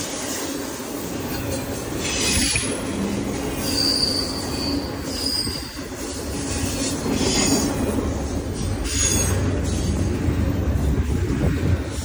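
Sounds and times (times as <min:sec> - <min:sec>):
freight train wheels rumbling: 0:00.0 - 0:12.0
high-pitched wheel squeal: 0:03.6 - 0:07.7.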